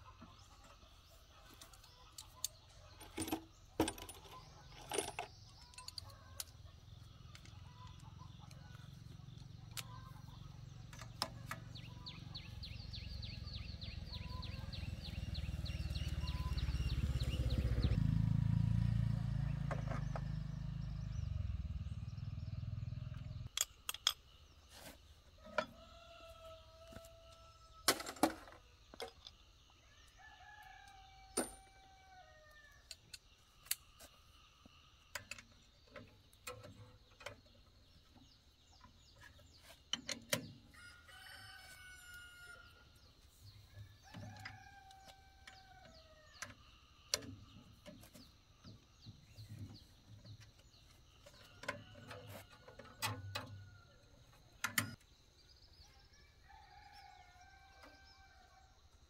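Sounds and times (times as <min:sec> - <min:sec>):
hand tools clinking on metal: 0:02.2 - 0:06.5
rooster crowing: 0:25.7 - 0:27.9, 0:40.7 - 0:42.9, 0:56.1 - 0:58.8.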